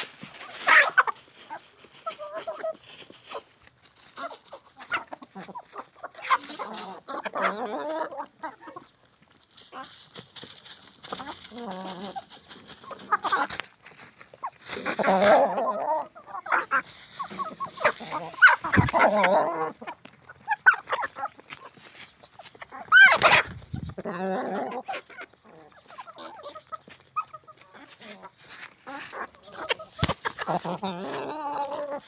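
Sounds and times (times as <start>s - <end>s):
chickens clucking: 0.0s - 32.0s.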